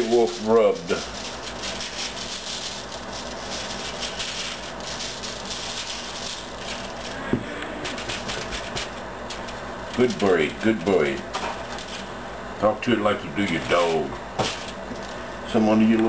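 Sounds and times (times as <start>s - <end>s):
seasoning shaker rattling: 0.0s - 7.2s, 7.8s - 12.0s.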